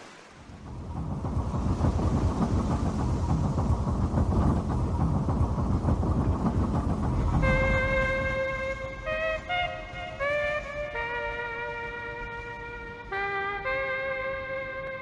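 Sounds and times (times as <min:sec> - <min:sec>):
steam engine chugging: 0:00.5 - 0:15.0
held musical note: 0:05.6 - 0:15.0.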